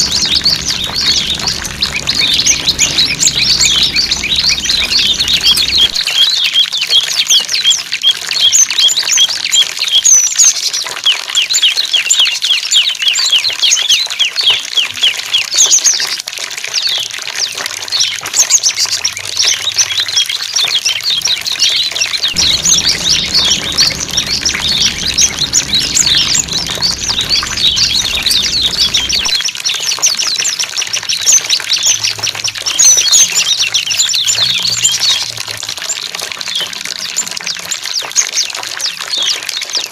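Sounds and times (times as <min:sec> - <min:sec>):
small songbirds chirping: 0:00.0 - 0:06.0, 0:21.0 - 0:29.4.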